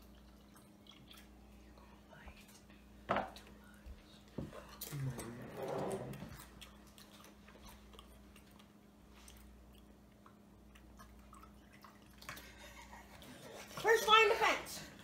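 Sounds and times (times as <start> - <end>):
mouth and chewing sounds: 0.0 - 2.8, 6.3 - 13.8
quiet room hum: 0.0 - 15.0.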